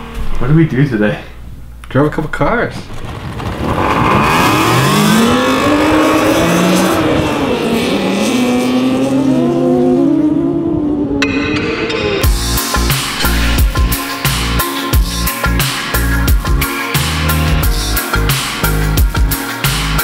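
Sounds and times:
car engine revving hard: 3.1s - 11.1s.

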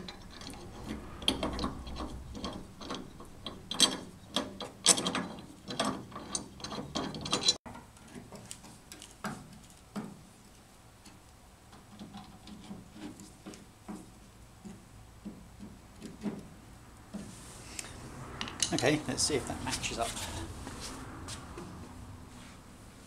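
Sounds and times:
metal parts clicking and rattling: 0.0s - 9.8s.

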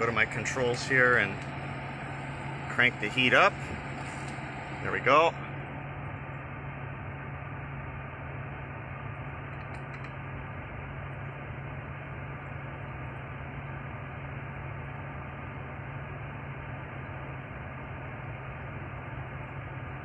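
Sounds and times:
blower fan air rushing: 0.0s - 7.4s
low hum: 0.0s - 20.0s.

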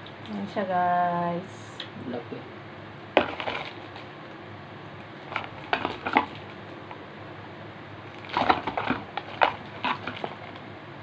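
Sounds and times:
plastic packaging crinkling: 3.2s - 4.2s, 5.0s - 7.0s, 8.0s - 10.7s.

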